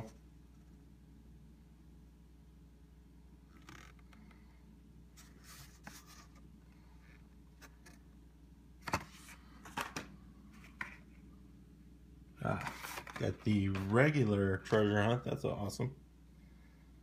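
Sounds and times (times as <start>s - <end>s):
packaging rustling: 12.5s - 14.8s.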